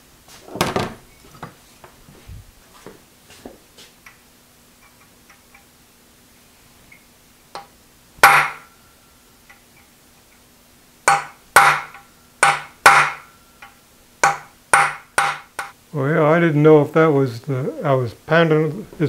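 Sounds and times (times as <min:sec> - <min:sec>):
hammer blows on metal punch: 0:07.6 - 0:08.8, 0:11.1 - 0:15.8.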